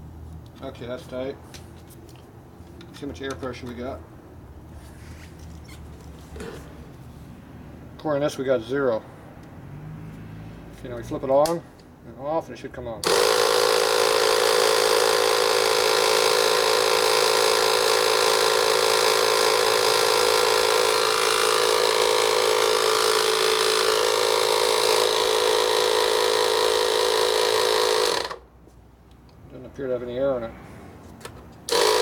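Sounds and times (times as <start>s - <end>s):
air compressor droning: 13.0s - 28.5s, 31.7s - 32.0s.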